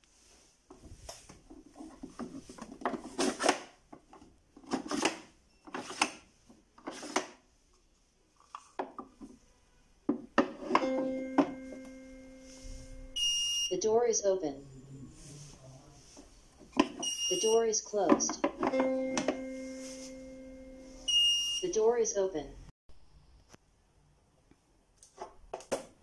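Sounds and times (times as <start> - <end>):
puzzle tiles scraping and knocking: 6.8 - 7.4, 10.1 - 11.6
steady hum: 18.8 - 21.1.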